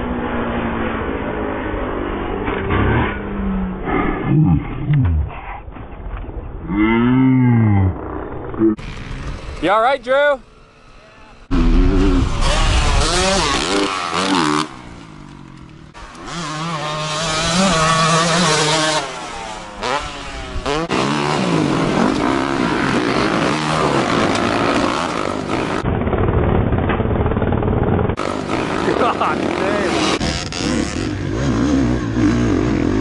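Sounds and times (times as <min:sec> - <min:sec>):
dirt bike engines revving: 0:06.8 - 0:25.9, 0:27.6 - 0:33.0.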